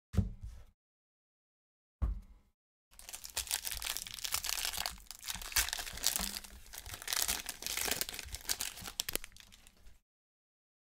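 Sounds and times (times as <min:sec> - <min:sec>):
foil wrapper crinkling and tearing: 0:03.0 - 0:10.0.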